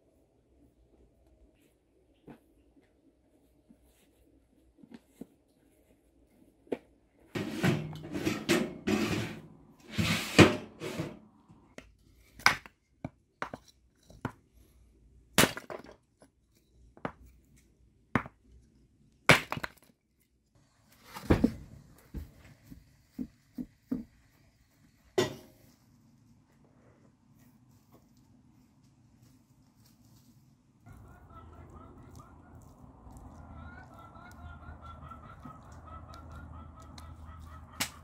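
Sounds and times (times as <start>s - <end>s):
rustling: 20.8s - 34.4s.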